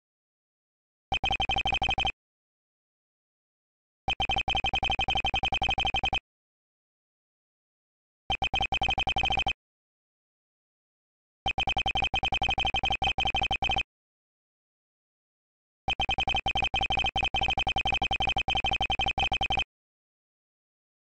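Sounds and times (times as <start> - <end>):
rapid electronic text beeps: 1.2 - 2.2, 4.2 - 6.2, 8.3 - 9.6, 11.5 - 13.8, 15.9 - 19.7.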